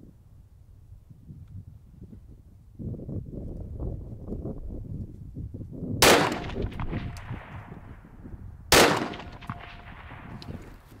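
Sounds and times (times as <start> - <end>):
rifle shot with echo: 6.0 - 8.1, 8.7 - 10.8.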